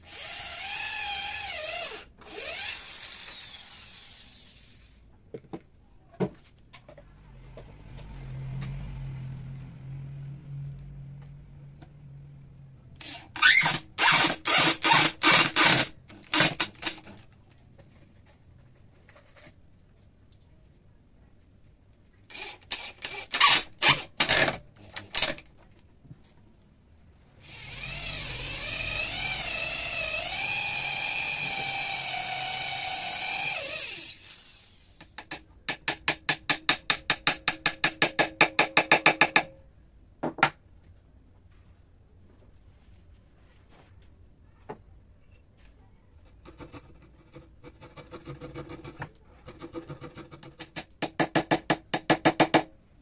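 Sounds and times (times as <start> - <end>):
cordless drill boring into wood: 0.0 - 4.8, 13.0 - 17.1, 22.3 - 24.5, 27.4 - 34.9.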